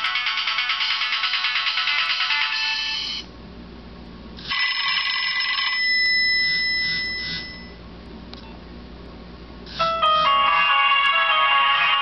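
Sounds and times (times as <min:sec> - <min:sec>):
mobile phone ringtone: 0:00.0 - 0:03.2, 0:04.5 - 0:07.8, 0:09.8 - 0:12.0.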